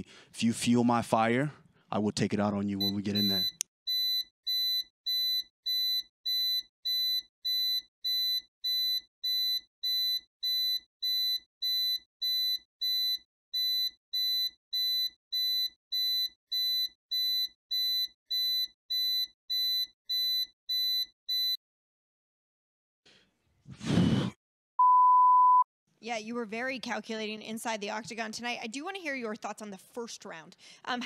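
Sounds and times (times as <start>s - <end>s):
smoke alarm beeping: 2.8s - 21.6s.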